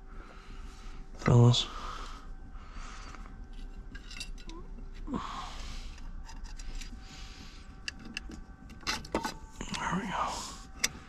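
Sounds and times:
small metal parts clicking: 3.5 - 5.1, 5.9 - 7.0, 7.8 - 9.8.

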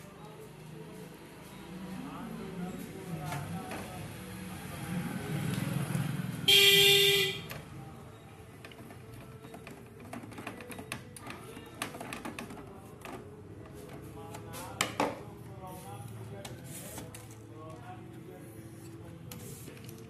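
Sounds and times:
loud honk: 6.5 - 7.5.

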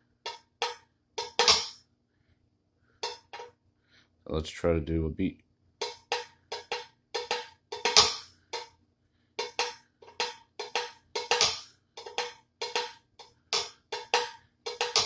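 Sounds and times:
pedal beater striking tin can: 0.3 - 1.8, 3.0 - 3.5, 5.8 - 8.7, 9.4 - 15.0.

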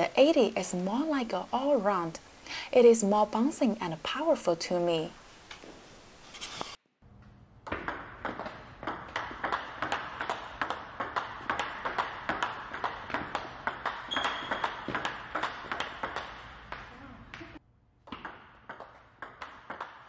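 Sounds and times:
table tennis ball pings: 7.6 - 20.0.

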